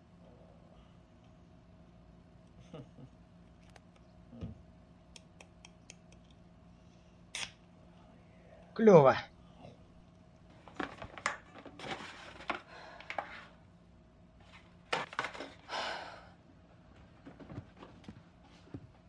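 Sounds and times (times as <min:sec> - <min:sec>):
paper bag rustling: 0:10.5 - 0:12.6.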